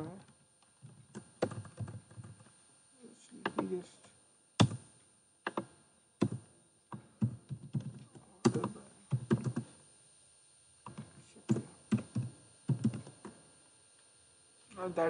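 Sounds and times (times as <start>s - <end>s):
typing on computer keyboard: 7.2s - 9.7s, 10.9s - 13.1s.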